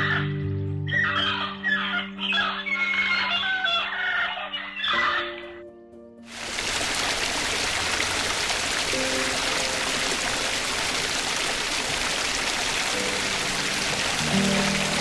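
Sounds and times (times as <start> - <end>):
waterfall rushing: 6.3 - 15.0
faint music notes: 12.8 - 15.0.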